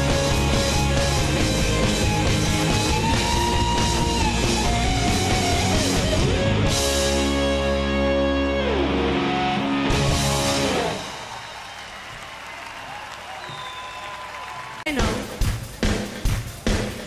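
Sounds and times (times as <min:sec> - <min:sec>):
rock band playing: 0:00.0 - 0:11.4.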